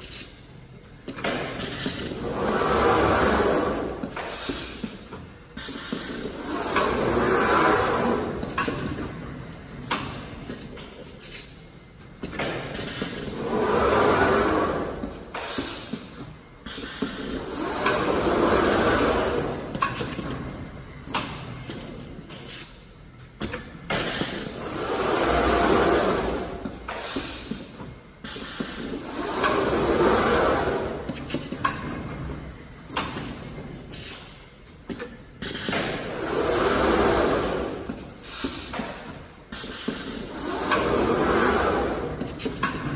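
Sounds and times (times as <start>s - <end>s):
mechanical gripper whirring: 40.2s - 42.9s.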